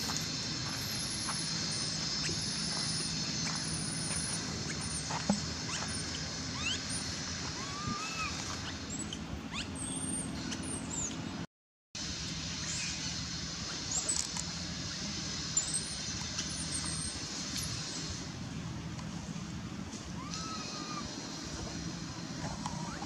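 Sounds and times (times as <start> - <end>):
faint high steady tones: 0.0 - 7.6
short chirping calls: 0.0 - 11.3, 14.9 - 18.2
steady outdoor hiss: 0.0 - 23.0.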